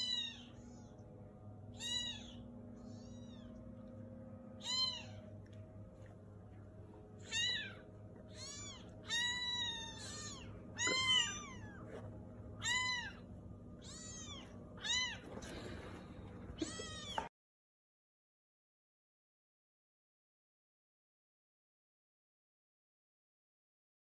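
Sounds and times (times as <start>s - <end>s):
kittens mewing: 1.7s - 3.7s, 4.6s - 5.4s, 7.2s - 17.3s.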